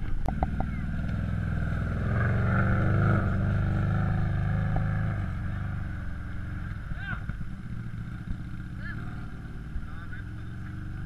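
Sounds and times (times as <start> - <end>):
utility vehicle engine passing by: 0.0 - 11.0.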